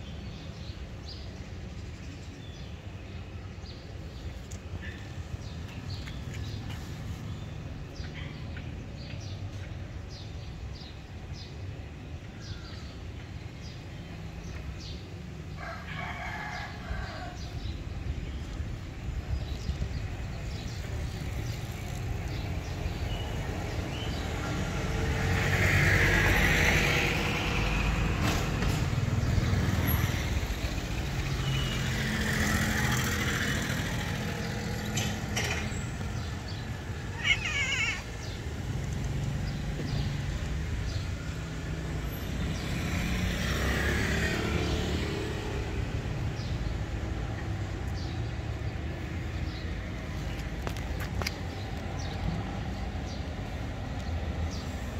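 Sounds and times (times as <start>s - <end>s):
traffic passing: 0.0s - 54.9s.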